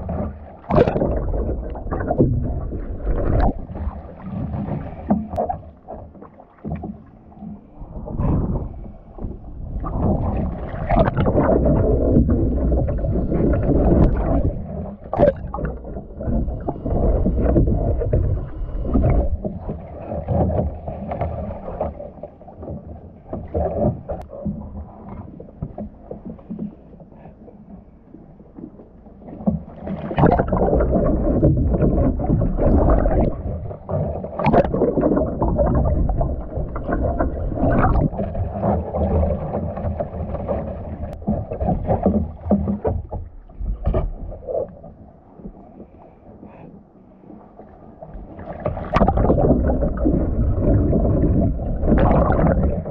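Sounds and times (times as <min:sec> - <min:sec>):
underwater sound: 0:00.0 - 0:52.9
water splashing against hull: 0:00.0 - 0:52.9
paddle stroke splashes: 0:28.6 - 0:52.9.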